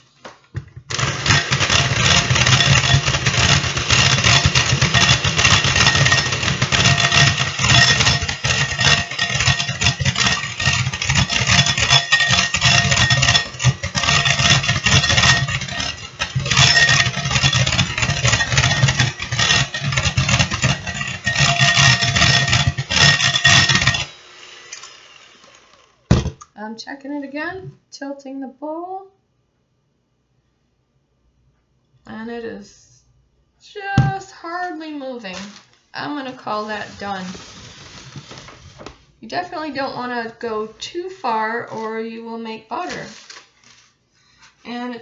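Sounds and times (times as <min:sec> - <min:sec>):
electric hand mixer whipping cream: 0:00.9 - 0:26.2.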